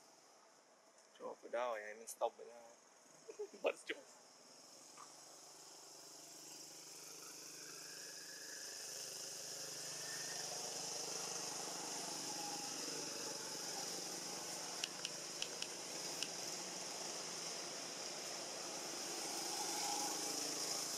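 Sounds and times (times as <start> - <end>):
high hiss: 1.1 - 20.9
sharp clicks: 14.8 - 16.4.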